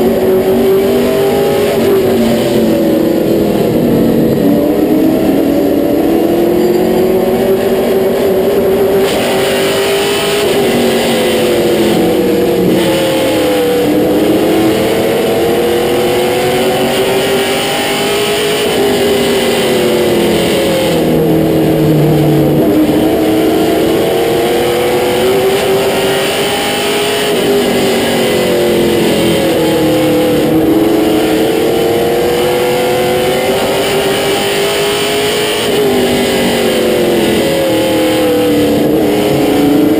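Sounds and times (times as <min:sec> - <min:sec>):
stock car engine at racing speed: 0:00.0 - 0:39.9.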